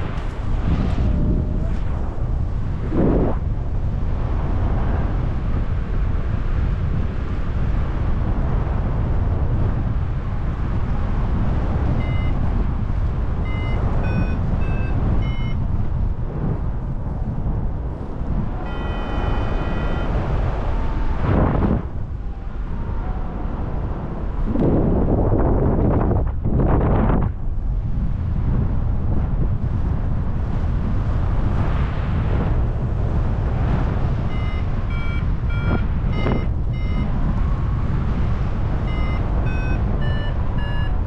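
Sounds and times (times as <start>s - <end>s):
wind rushing over microphone: 0.0s - 41.0s
variometer beeps: 11.8s - 15.6s, 18.6s - 20.6s, 34.2s - 41.0s
steady electronic tone: 12.0s - 12.6s, 13.4s - 15.6s, 18.2s - 21.3s, 34.2s - 37.7s, 38.8s - 41.0s.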